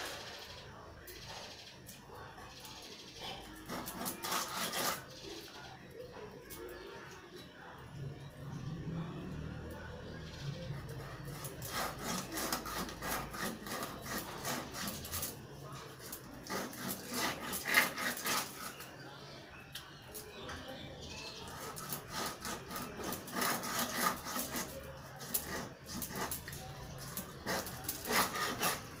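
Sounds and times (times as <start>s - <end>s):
knife scraping fish scales: 3.3s - 5.4s, 10.8s - 18.9s, 21.2s - 29.0s.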